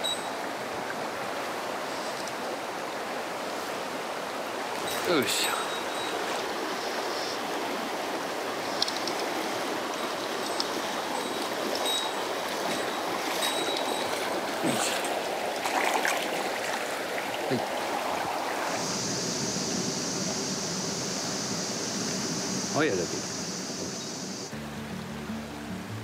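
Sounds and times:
stream running over rocks: 0:00.0 - 0:26.0
small splashes and clicks: 0:08.7 - 0:09.3.

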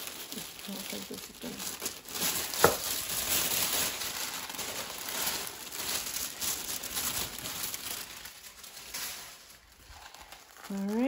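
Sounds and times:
tissue paper rustling: 0:00.0 - 0:11.0.

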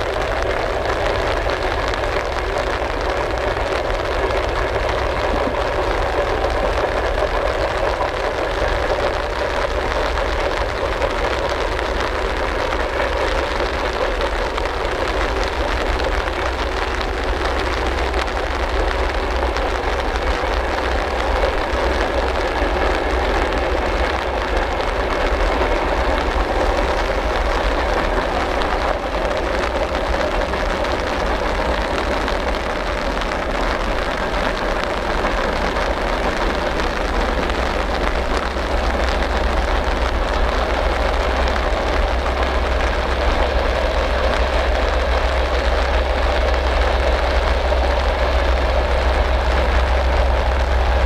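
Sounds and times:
diesel locomotive rumbling: 0:00.0 - 0:51.0
steady rain hiss: 0:00.0 - 0:51.0.

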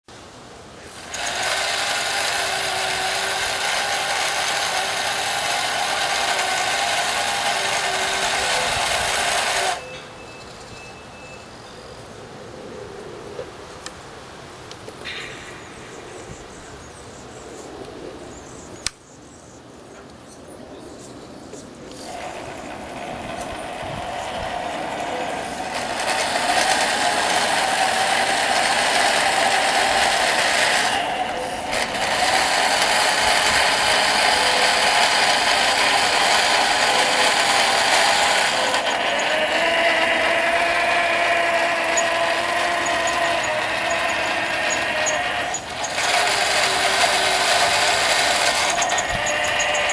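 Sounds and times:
model steam engine hissing whirring: 0:00.8 - 0:09.8, 0:21.9 - 0:49.9.

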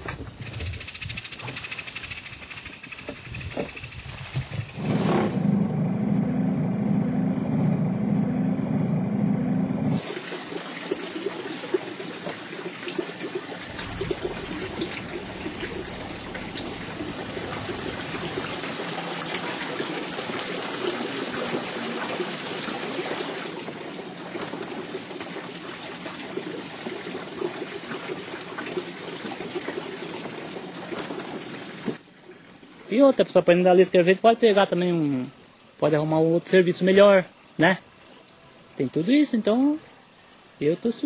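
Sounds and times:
water trickling: 0:10.0 - 0:33.2
low rumble: 0:13.6 - 0:19.9.

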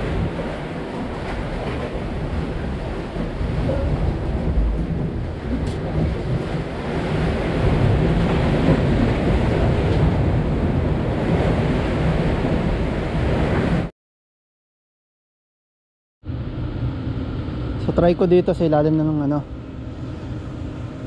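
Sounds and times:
sea surf washing on concrete: 0:00.0 - 0:13.9
wind rumbling on microphone: 0:00.0 - 0:13.9.

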